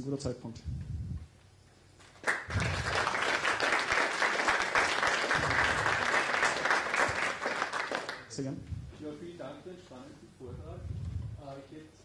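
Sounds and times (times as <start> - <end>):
audience applauding: 2.2 - 8.4.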